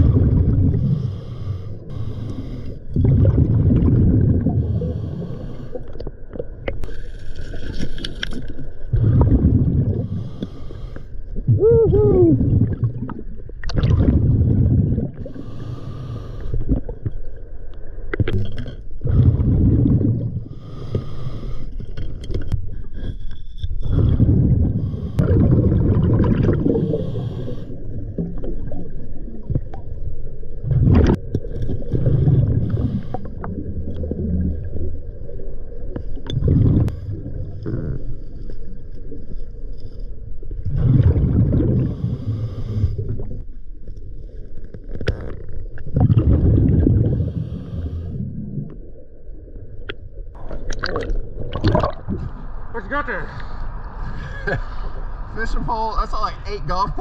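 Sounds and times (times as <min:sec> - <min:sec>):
exhaled bubbles underwater: 0:00.0 - 0:06.9, 0:08.3 - 0:10.4, 0:11.3 - 0:15.7, 0:16.5 - 0:21.0, 0:23.8 - 0:39.6, 0:40.4 - 0:43.5, 0:45.0 - 0:52.7
regulator hissing inhale: 0:00.9 - 0:02.9, 0:04.6 - 0:05.9, 0:10.0 - 0:11.2, 0:15.3 - 0:16.6, 0:20.4 - 0:21.8, 0:24.8 - 0:25.2, 0:26.8 - 0:27.8, 0:41.9 - 0:43.2, 0:47.2 - 0:48.2.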